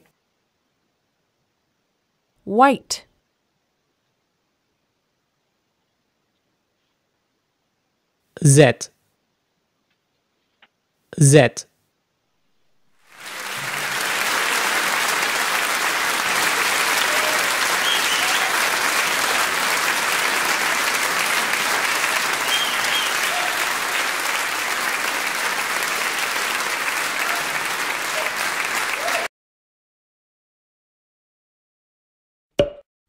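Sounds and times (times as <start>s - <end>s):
crowd applause: 13.0s - 29.3s.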